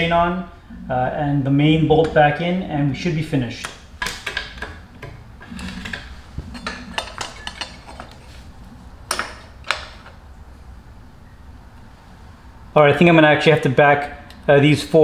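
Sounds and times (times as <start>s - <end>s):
metal parts clinking and knocking: 5.5s - 8.2s.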